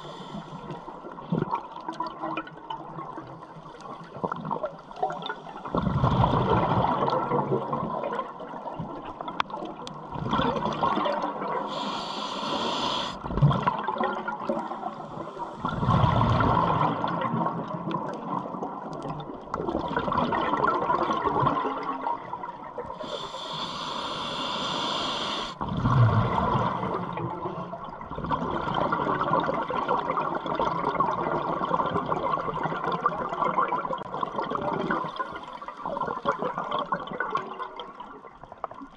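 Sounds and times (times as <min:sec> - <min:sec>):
regulator inhalation hiss: 0:00.0 - 0:00.8, 0:11.6 - 0:13.2, 0:23.0 - 0:25.6
exhaled bubbles rumbling underwater: 0:00.0 - 0:38.9.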